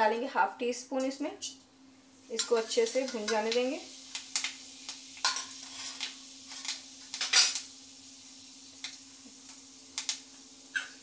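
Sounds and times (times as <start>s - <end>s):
seeds sizzling in oil: 1.4s - 11.0s
metal spoon clinking on pan: 2.4s - 3.5s, 5.2s - 6.0s.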